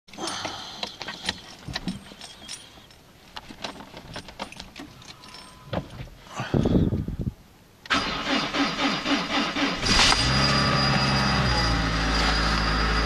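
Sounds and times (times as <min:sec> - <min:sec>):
clicks and rustles of handling: 0:00.2 - 0:06.1
car starter cranking: 0:07.8 - 0:10.9.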